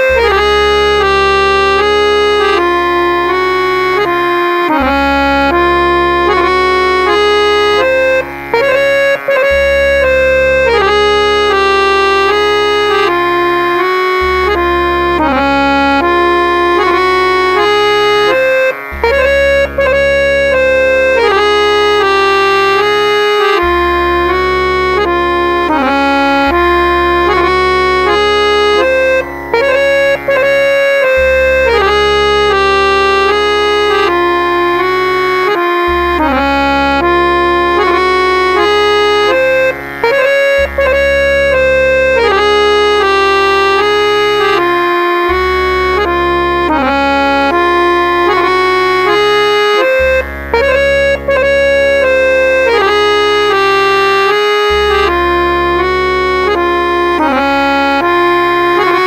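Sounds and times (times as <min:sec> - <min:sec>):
harmonium melody over bass drone: 0:00.0 - 0:59.0.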